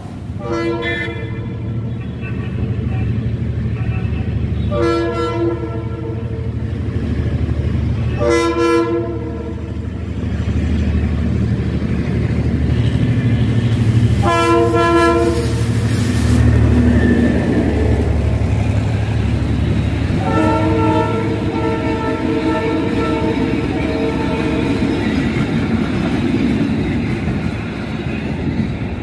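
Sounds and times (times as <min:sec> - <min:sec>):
train engine rumbling: 0:00.0 - 0:29.0
train horn blasts: 0:00.4 - 0:06.6, 0:08.0 - 0:09.7, 0:14.2 - 0:15.8, 0:20.2 - 0:24.8.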